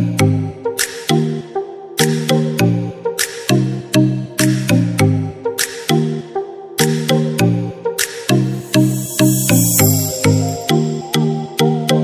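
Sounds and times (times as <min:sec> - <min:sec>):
electronic music: 0:08.5 - 0:11.4.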